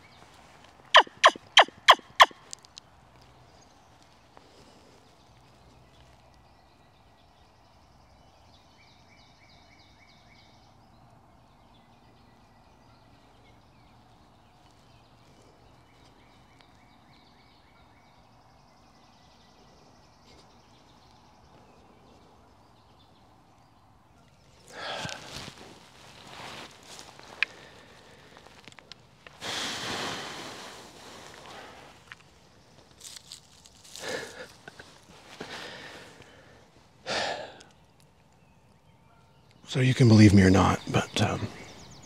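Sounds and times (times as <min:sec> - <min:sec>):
faint bird call: 0:00.9 - 0:02.5
loud rustle of movement: 0:24.4 - 0:36.3.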